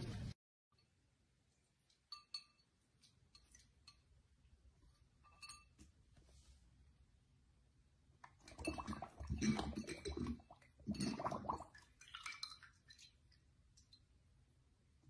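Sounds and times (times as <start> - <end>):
puppy lapping water: 8.2 - 14.0.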